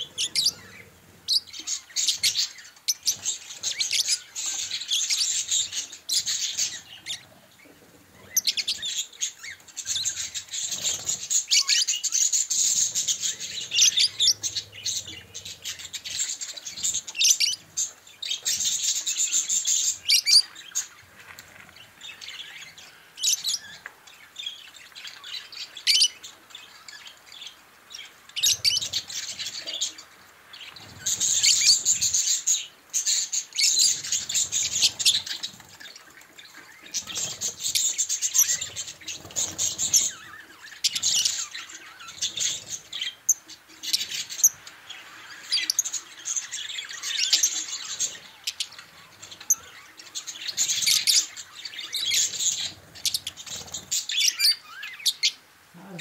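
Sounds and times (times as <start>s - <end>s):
budgerigars chattering and chirping: 0.0s - 21.2s, 21.8s - 56.0s.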